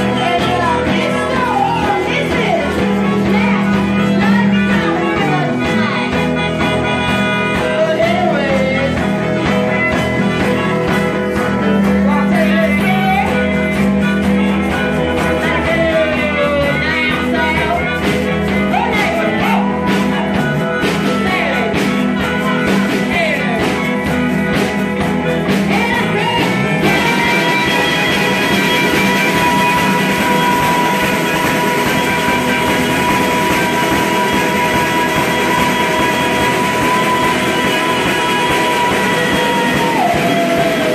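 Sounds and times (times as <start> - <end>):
accordion holding long notes: 0.0 - 12.0, 26.5 - 40.9
live band music with singing: 0.0 - 40.9.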